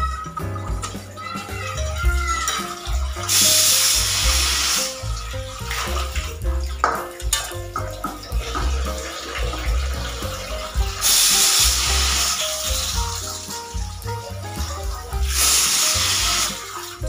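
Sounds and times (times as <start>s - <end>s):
background music: 0.0s - 17.0s
pressure cooker whistle hissing: 3.3s - 5.1s, 11.0s - 12.7s, 15.4s - 16.7s.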